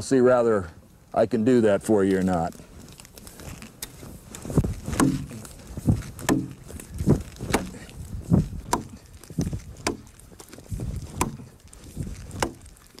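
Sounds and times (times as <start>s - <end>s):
axe chopping into log: 4.8s - 5.4s, 6.2s - 7.8s, 8.6s - 10.1s, 11.0s - 11.5s, 12.3s - 12.6s.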